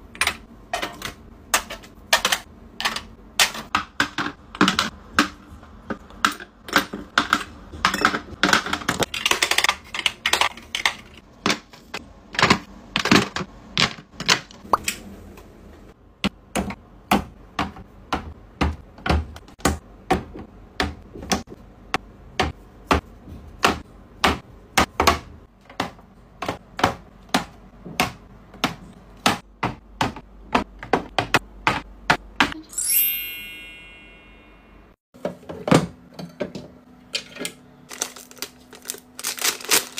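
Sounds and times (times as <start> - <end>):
bright twinkling chime: 32.6 - 34.8.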